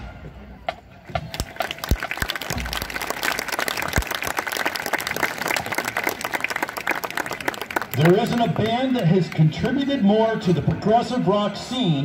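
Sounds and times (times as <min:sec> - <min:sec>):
crowd clapping: 0:01.2 - 0:09.9.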